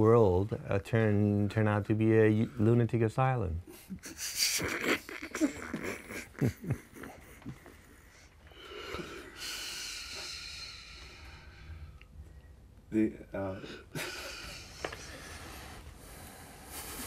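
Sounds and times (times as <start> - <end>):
soft breathy laughter: 3.7 - 8.3, 13.7 - 15.7
long hissing breath: 8.1 - 12.0, 13.9 - 17.0.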